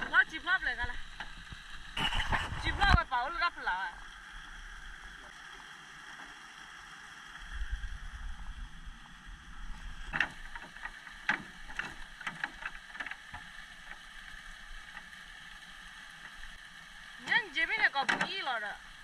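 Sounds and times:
irregular knocks and clicks: 10.0s - 14.1s.

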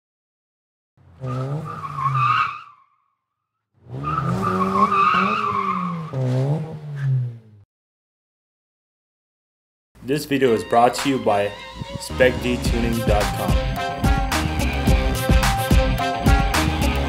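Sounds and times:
tyres squealing: 1.2s - 2.9s, 3.9s - 7.1s.

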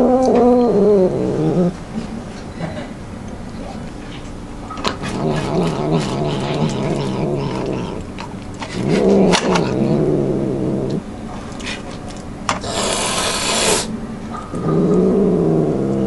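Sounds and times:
cat growling: 0.0s - 1.8s, 4.9s - 11.1s, 12.6s - 13.9s, 14.5s - 16.0s
hissing noise: 12.7s - 13.9s.

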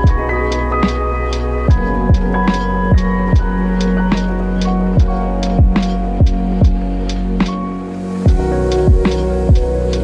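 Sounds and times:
deep kick drums: 0.0s - 0.3s, 1.7s - 4.3s, 5.0s - 7.6s, 8.3s - 9.8s.

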